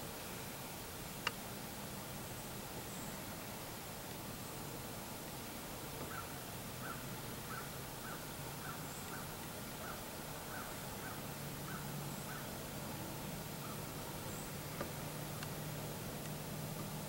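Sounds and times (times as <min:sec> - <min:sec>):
steady hiss: 0:00.0 - 0:17.0
distant animal calling: 0:06.1 - 0:12.6.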